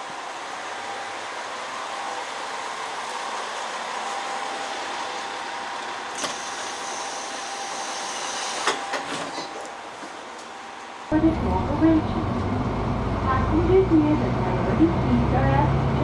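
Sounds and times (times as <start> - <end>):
diesel railcar idling: 0.0 - 16.0
door sliding open with clatters: 6.1 - 10.2.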